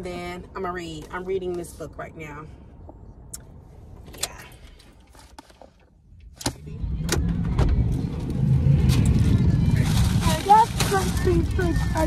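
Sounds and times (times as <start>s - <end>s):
low rumble: 6.5s - 12.0s.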